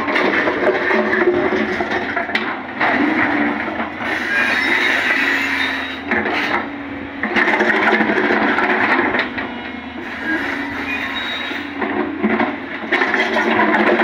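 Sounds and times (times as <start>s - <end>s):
excavator engine and hydraulics: 0.0s - 14.0s.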